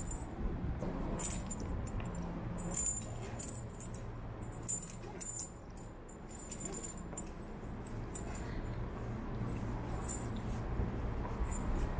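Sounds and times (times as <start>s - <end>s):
metal climbing hardware clinking: 1.0s - 9.0s, 9.8s - 10.6s.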